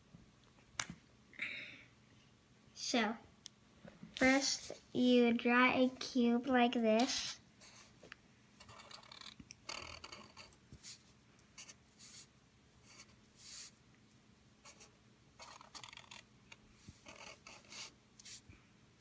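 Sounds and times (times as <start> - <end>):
marker scratching on paper: 7.1 - 7.9, 8.6 - 11.0, 11.6 - 13.8, 14.6 - 16.2, 16.9 - 18.4.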